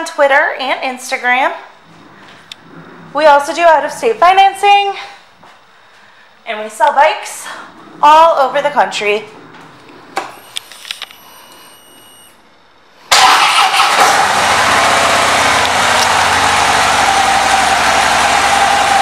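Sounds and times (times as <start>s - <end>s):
faint high steady tone: 10.3s - 12.6s
motorcycle engine starting and idling: 13.1s - 19.0s.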